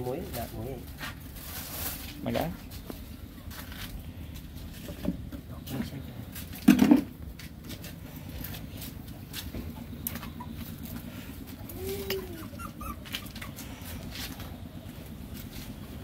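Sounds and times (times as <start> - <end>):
dove cooing: 9.6 - 14.0.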